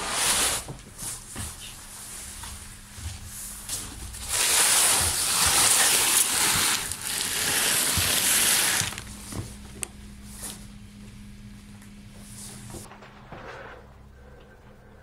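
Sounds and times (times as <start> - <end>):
cardboard box scraping across wooden floor: 4.2 - 9.0.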